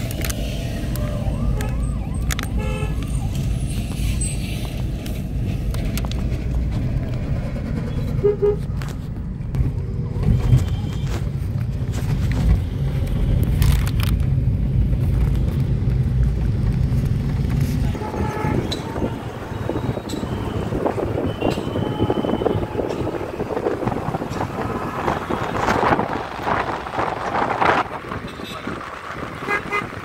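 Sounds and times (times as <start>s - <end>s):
car cabin engine and road rumble: 0.0s - 29.3s
car horn toot: 2.6s - 3.0s, 18.0s - 23.2s.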